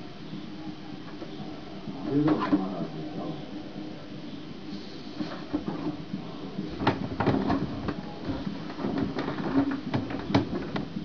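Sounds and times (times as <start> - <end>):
balloons tapping and knocking: 6.8 - 10.9.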